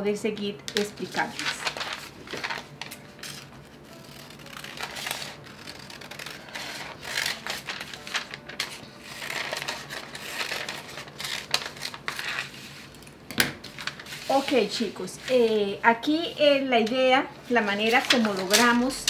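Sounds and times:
paper rustling: 0.7s - 15.6s, 17.6s - 19.0s
scissors snipping paper: 2.9s - 8.0s.

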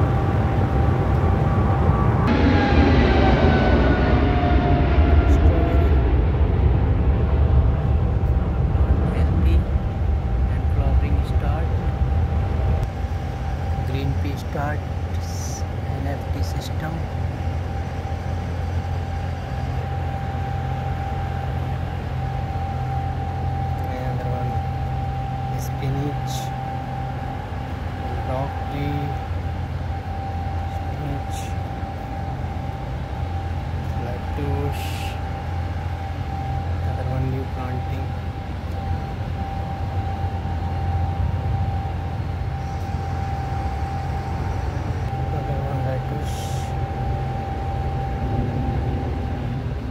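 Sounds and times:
fans droning: 0.0s - 49.9s
low machine hum: 0.0s - 49.9s
thin constant tone: 0.0s - 49.9s.

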